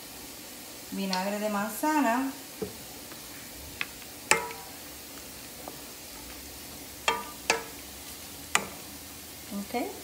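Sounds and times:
faint sizzle: 0.0s - 10.0s
utensil knocking on metal pot: 4.3s - 4.7s, 7.0s - 7.8s, 8.6s - 8.8s.

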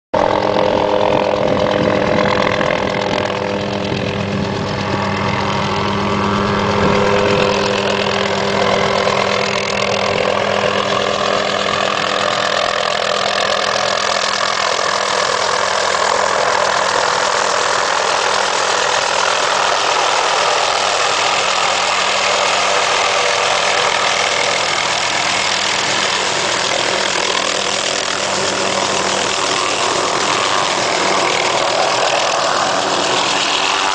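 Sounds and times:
helicopter turbine and rotors: 0.2s - 33.9s.

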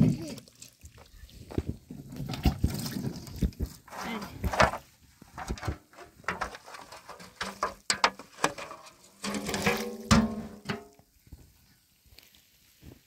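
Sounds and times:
metal tray scraping on gravel: 3.8s - 11.0s
tray rim knocking on stones: 5.4s - 11.0s
metal tray ringing: 9.2s - 10.9s.

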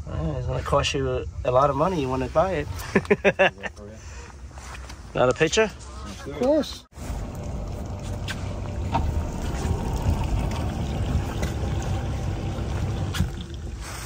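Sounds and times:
boat rumble and hiss: 7.0s - 14.0s.

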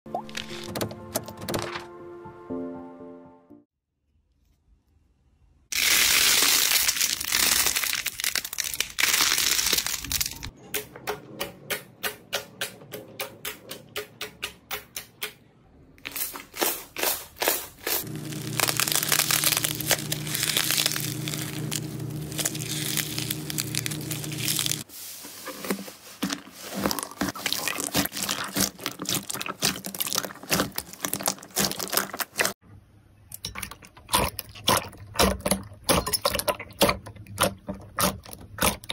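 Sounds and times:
slime crackling: 5.8s - 10.5s, 17.8s - 24.8s, 26.8s - 32.6s.

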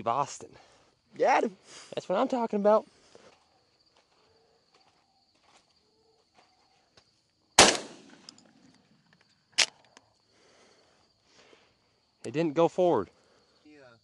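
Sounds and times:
shotgun shot: 7.6s - 8.2s.

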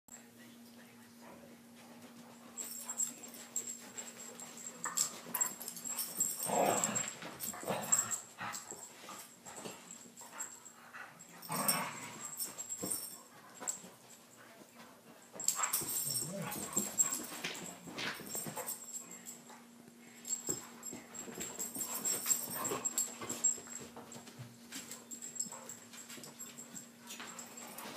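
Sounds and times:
dogs scuffling: 1.8s - 27.9s
dogs play-fighting vocal noises: 4.1s - 8.8s, 15.4s - 18.7s.

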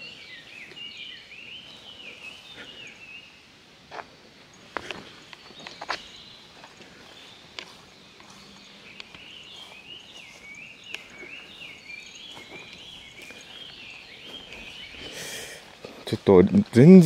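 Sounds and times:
footsteps: 3.9s - 17.0s.

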